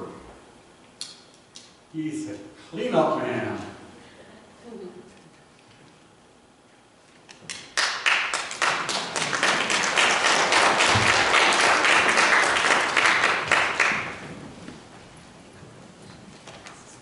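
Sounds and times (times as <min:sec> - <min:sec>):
crowd applauding: 0:07.5 - 0:14.8.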